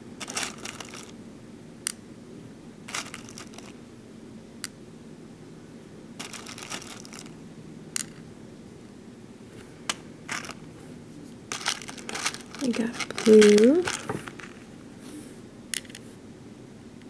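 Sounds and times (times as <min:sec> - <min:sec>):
beads clicking on pegboard: 0:00.2 - 0:01.1, 0:06.2 - 0:07.3, 0:11.5 - 0:14.6
plastic beads rattling in tray: 0:00.2 - 0:01.1, 0:02.9 - 0:03.7, 0:06.2 - 0:07.4, 0:10.3 - 0:10.6, 0:11.5 - 0:14.6.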